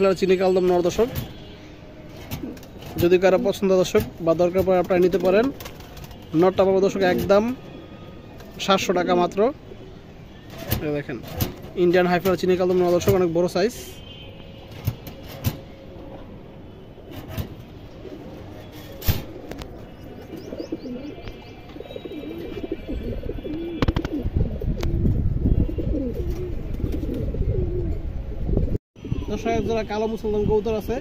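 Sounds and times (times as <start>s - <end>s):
pigeons cooing: 17.0s - 25.0s, 25.6s - 28.6s.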